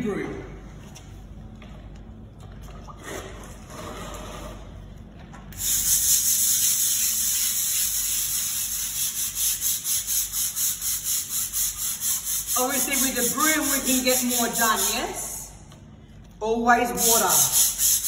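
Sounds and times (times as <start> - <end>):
scrub brush scrubbing wet tile: 5.6 - 15.3, 16.9 - 18.0.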